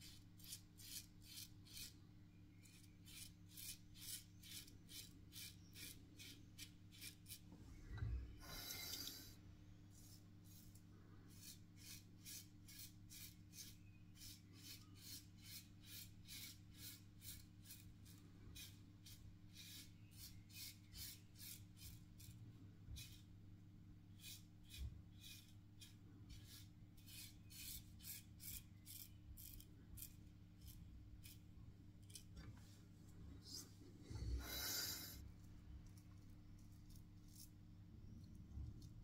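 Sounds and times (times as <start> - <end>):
razor scraping stubble: 0.0 - 7.4, 10.0 - 22.3, 24.2 - 32.4, 36.2 - 37.6.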